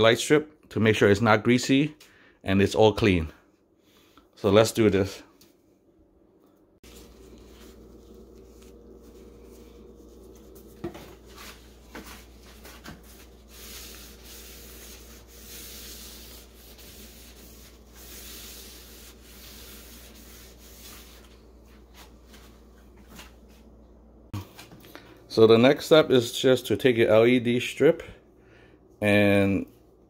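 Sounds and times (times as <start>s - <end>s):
wet wipe scrubbing wood: 6.8s - 22.4s.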